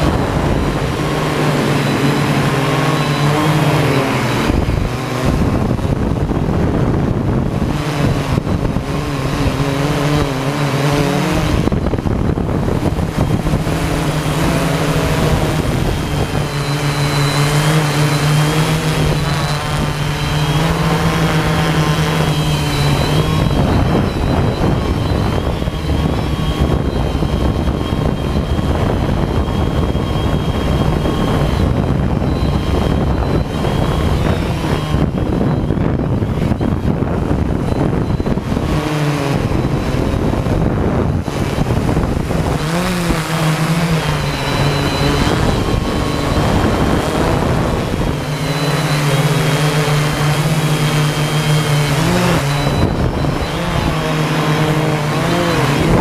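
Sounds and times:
drone propellers whirring: 0:00.0 - 0:56.0.

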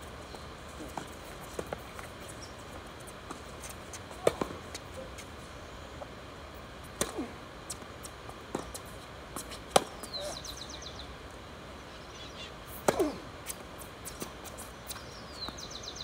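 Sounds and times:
tennis ball bouncing on hard court: 0:03.3 - 0:04.8, 0:07.0 - 0:07.8, 0:09.4 - 0:10.0
tennis ball hit by racquet: 0:04.1 - 0:04.8, 0:07.0 - 0:07.8, 0:09.4 - 0:10.0, 0:12.8 - 0:14.3.

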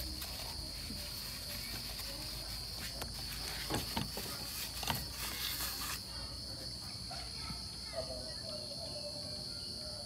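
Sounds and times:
tissue rustling: 0:00.0 - 0:06.2.

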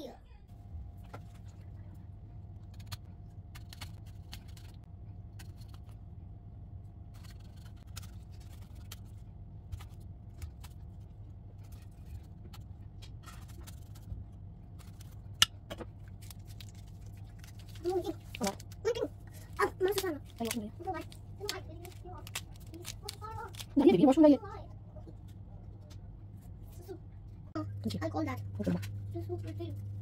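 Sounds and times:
steady low hum: 0:00.0 - 0:30.0
knife scratching fruit rind: 0:02.6 - 0:06.0, 0:07.1 - 0:11.0.

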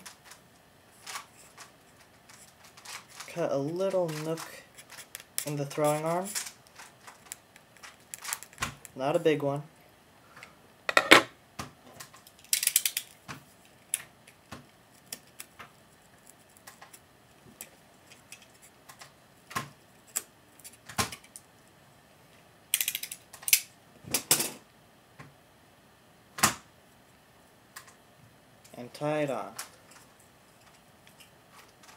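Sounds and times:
small tools clicking: 0:12.4 - 0:13.2, 0:22.7 - 0:23.6.

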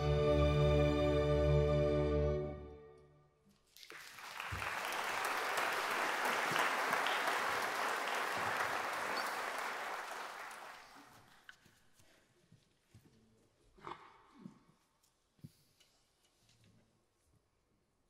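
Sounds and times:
audience applauding: 0:03.8 - 0:11.3.

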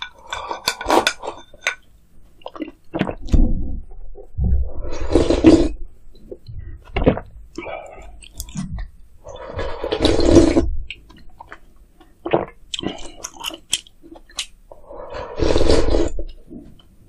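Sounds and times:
person chewing food: 0:02.4 - 0:03.3, 0:04.9 - 0:16.9.

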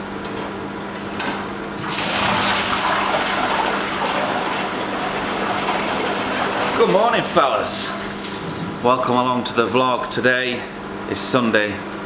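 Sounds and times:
steady hum: 0:00.0 - 0:12.0
water rushing through pipes: 0:01.8 - 0:08.8.

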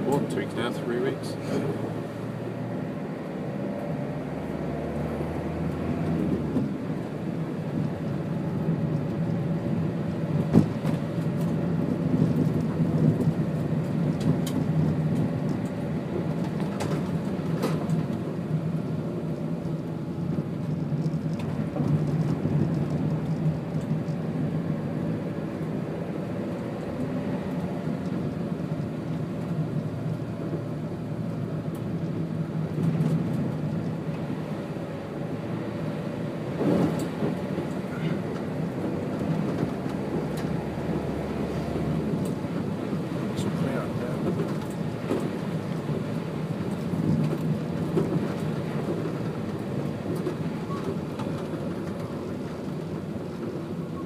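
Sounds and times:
tyres hissing on wet road: 0:00.0 - 0:07.6
vehicle engine drone: 0:00.0 - 0:54.0.

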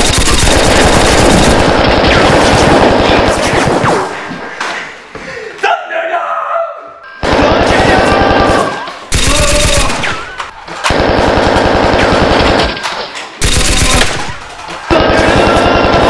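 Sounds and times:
machine-gun bursts: 0:00.0 - 0:03.8, 0:07.2 - 0:10.2, 0:10.9 - 0:12.8, 0:13.4 - 0:16.0.

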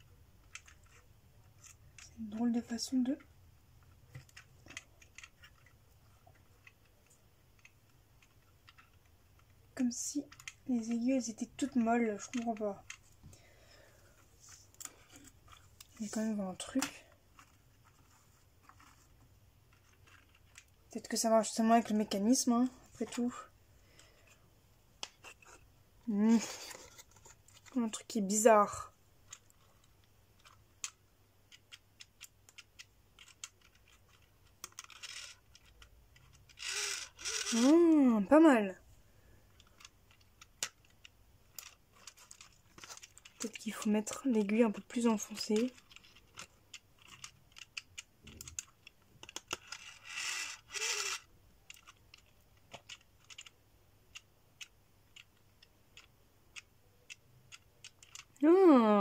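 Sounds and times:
small wooden clicks and taps: 0:00.4 - 0:02.2, 0:03.2 - 0:09.6, 0:10.3 - 0:10.7, 0:29.3 - 0:36.6, 0:39.6 - 0:44.2, 0:45.4 - 0:49.8, 0:51.7 - 0:58.4.

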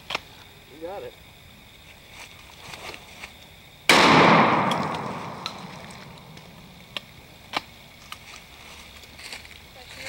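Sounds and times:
shotgun blast: 0:03.9 - 0:06.4.

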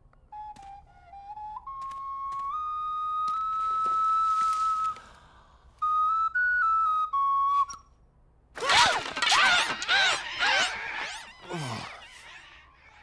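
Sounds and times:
startled cries: 0:08.6 - 0:13.0.

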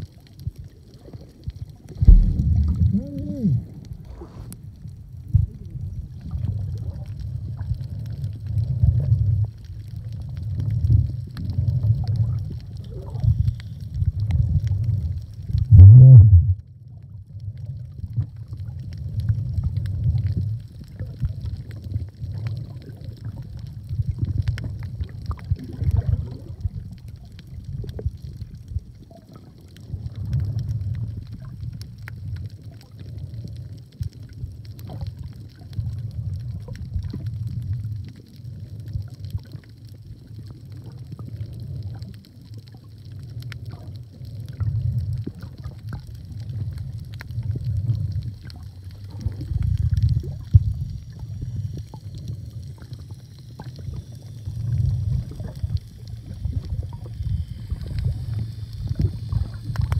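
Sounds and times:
underwater rumbling water: 0:00.0 - 0:59.9
faint hiss: 0:00.7 - 0:07.0, 0:40.0 - 0:59.9
small clicks: 0:57.8 - 0:59.9.

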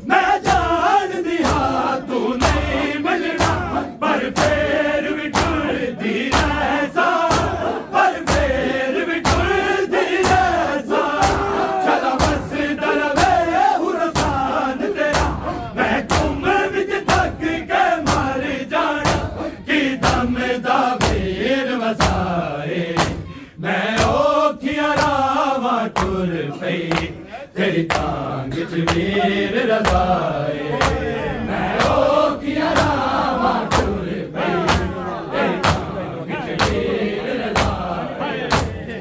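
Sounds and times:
men chanting a lament: 0:00.0 - 0:39.0
chest-beating impacts: 0:02.4 - 0:20.4.

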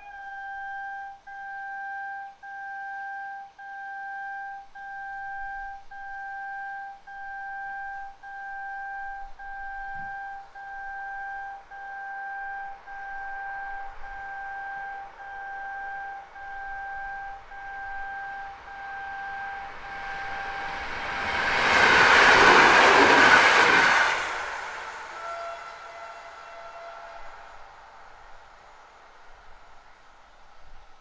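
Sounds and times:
two-note crossing warning tone: 0:00.0 - 0:24.0
approaching train rush: 0:17.4 - 0:31.0.

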